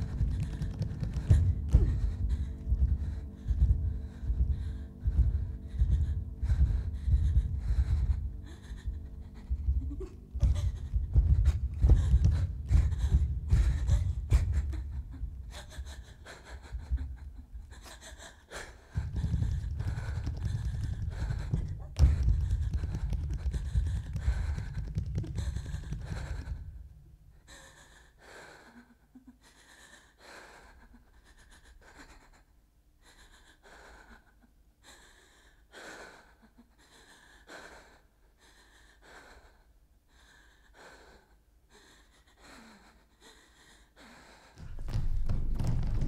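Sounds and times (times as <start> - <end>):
deep rumble: 0.0 - 16.0, 18.9 - 26.8
person breathing hard: 0.0 - 45.0.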